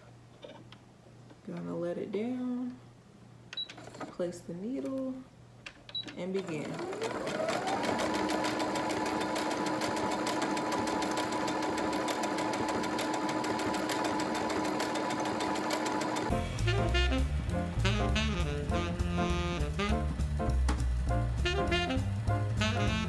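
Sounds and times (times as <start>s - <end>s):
sewing machine stitching: 6.0s - 16.3s
music: 16.3s - 23.0s.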